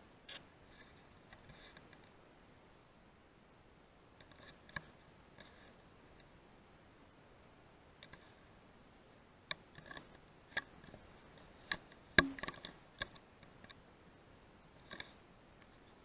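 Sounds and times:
faint irregular clicks: 0.2s - 2.2s, 4.1s - 6.4s, 8.0s - 8.5s, 9.4s - 13.9s, 14.8s - 16.0s.

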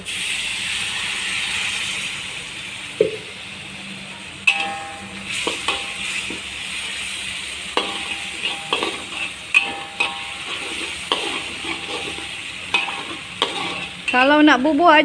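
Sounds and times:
water sizzling in hot wok: 0.0s - 15.0s
metal spatula clinking on wok: 4.5s - 6.4s, 7.7s - 14.3s.

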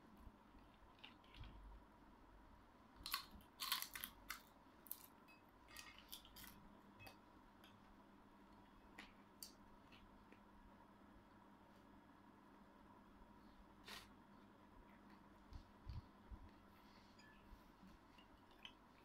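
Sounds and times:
faint steady hum: 0.0s - 19.0s
dried fish crunching: 3.0s - 6.6s.

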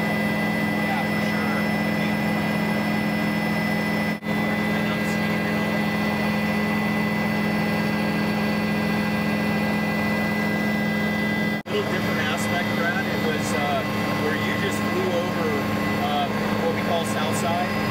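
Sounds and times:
aircraft engine drone in cabin: 0.0s - 17.9s.

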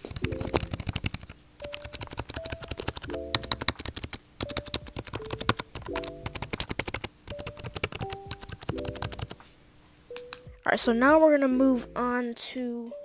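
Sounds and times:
keyboard keys clicking: 0.0s - 9.4s, 10.1s - 10.6s.

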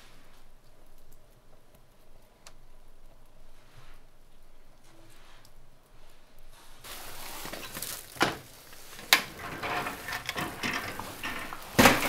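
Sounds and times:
glass sliding door rolling on track: 8.2s - 12.0s.

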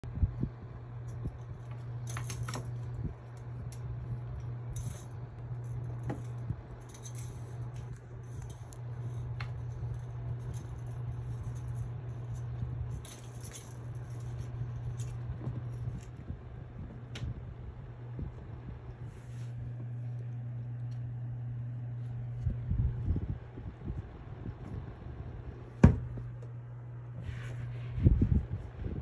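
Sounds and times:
steady low hum: 0.0s - 29.0s
fan stand rattling: 0.1s - 18.9s.

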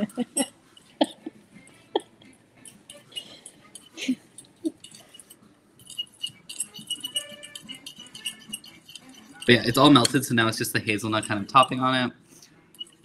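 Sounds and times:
metal spoon scraping ceramic bowl: 2.6s - 11.8s, 12.7s - 13.0s.

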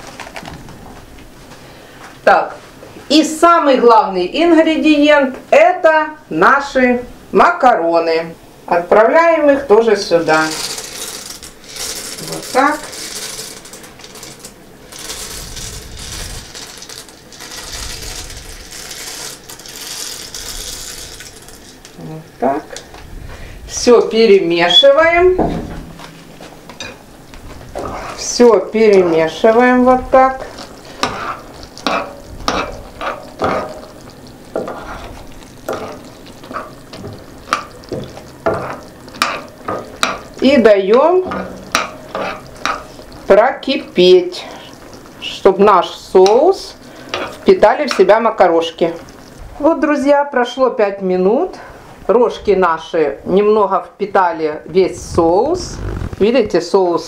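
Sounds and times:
dry macaroni pouring into a pan: 10.2s - 22.0s
spoon stirring macaroni in a pot: 27.8s - 44.0s, 44.6s - 49.4s.

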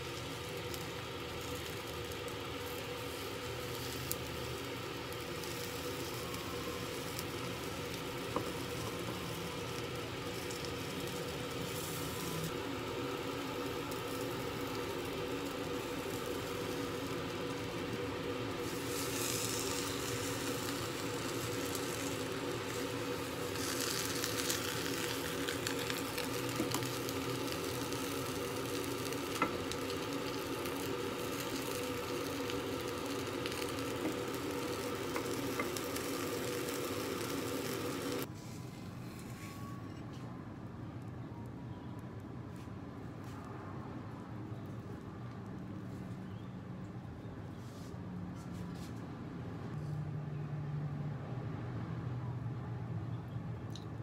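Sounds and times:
egg sizzling in a pan: 0.0s - 38.3s.

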